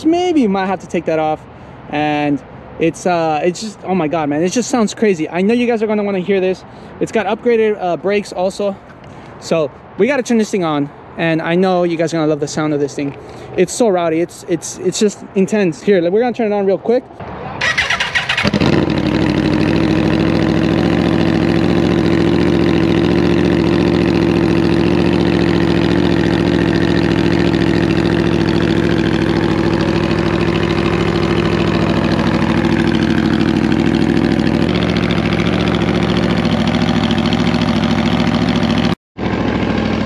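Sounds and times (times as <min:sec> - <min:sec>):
motorcycle engine idling loudly: 0:17.7 - 0:40.0.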